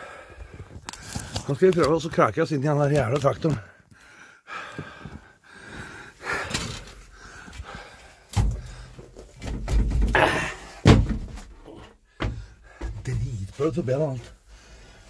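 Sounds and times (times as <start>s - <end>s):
man breathing hard: 0.0s - 1.4s, 3.8s - 9.4s, 10.2s - 10.9s, 11.7s - 13.0s, 14.4s - 15.0s
heavy thumps against cab: 10.8s - 11.5s, 12.2s - 13.2s.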